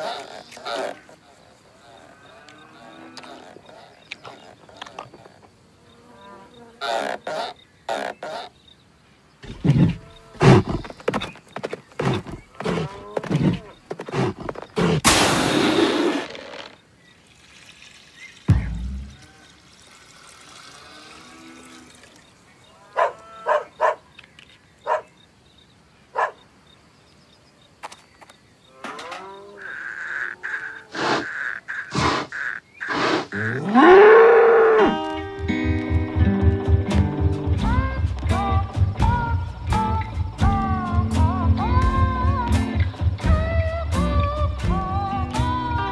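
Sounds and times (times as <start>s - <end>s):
bull grunting and bellowing: 0.0s - 5.3s, 9.4s - 16.8s, 28.7s - 35.3s
cartoon bull mooing: 12.3s - 15.0s, 32.9s - 35.1s
music: 35.0s - 45.9s.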